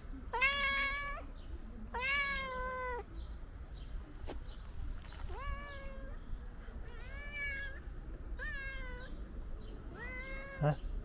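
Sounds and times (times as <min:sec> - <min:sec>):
cat meowing: 0:00.3 - 0:01.3, 0:01.9 - 0:03.1, 0:05.3 - 0:06.2, 0:06.9 - 0:07.8, 0:08.4 - 0:09.2, 0:09.9 - 0:10.8.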